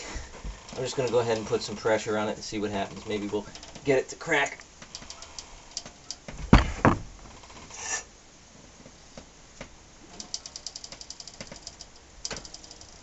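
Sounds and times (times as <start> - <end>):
ratchet clicking: 4.9 - 6.2, 10.2 - 13.0
nut cracking loose: 10.2 - 13.0.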